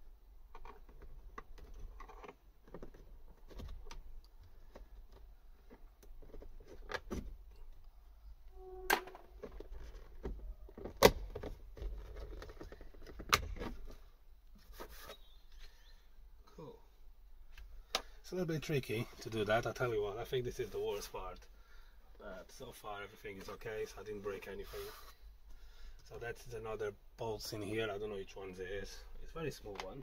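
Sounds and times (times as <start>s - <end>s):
plastic panel clicking and rattling: 9.4s - 14.0s.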